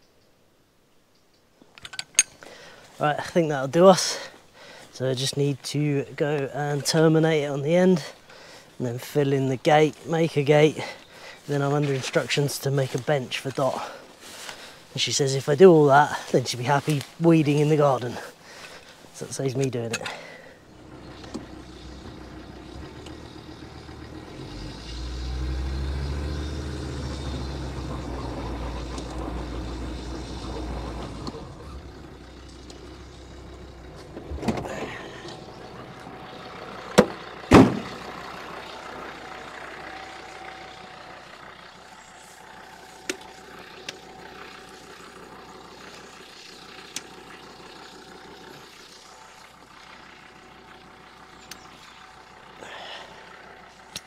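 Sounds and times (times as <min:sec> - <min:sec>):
vehicle engine running low: 0:02.2 - 0:54.0
vehicle door shutting: 0:33.9 - 0:36.2, 0:36.8 - 0:38.1.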